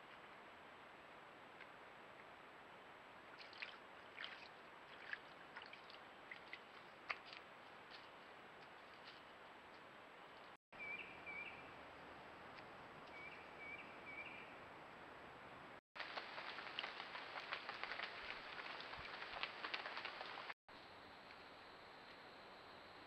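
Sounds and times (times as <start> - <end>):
faint clicks and rustles: 16.0 - 20.6.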